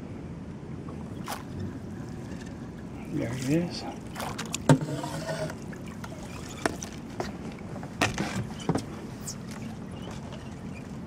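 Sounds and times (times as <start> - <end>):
water lapping against boat hull: 0.8 - 11.0
sharp knocks from boat: 4.1 - 10.4.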